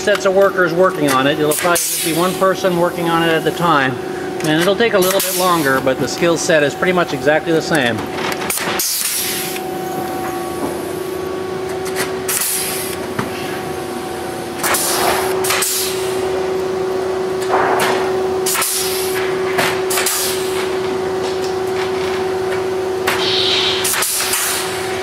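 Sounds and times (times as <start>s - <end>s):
steady hum: 0.0s - 25.0s
rivet gun hiss and snap: 23.8s - 24.7s.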